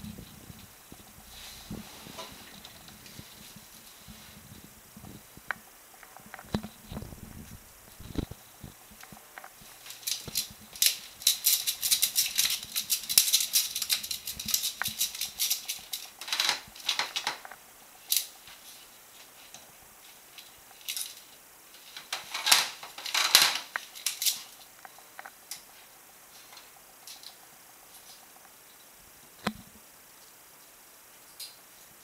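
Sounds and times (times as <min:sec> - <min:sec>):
claws scratching on plastic tubes: 0:09.7 - 0:17.5.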